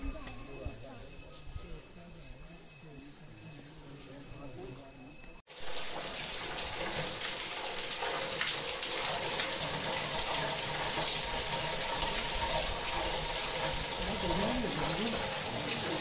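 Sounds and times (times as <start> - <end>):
water falling into stone tank: 5.5 - 16.0.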